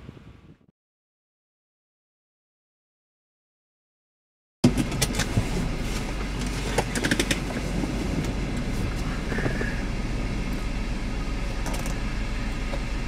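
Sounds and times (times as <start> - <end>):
car interior road rumble: 0.0 - 0.6, 4.6 - 13.0
wind rushing: 7.1 - 11.4.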